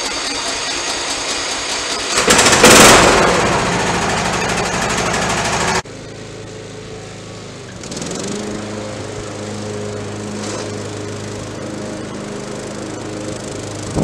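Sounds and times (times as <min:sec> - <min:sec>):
lawn mower engine running: 0:00.0 - 0:14.0.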